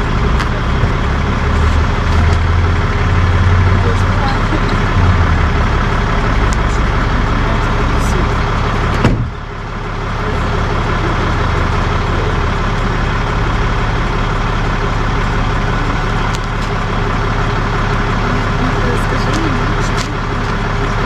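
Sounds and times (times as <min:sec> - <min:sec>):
tow truck engine droning: 0:00.0 - 0:21.0
sharp knock: 0:09.0 - 0:09.4.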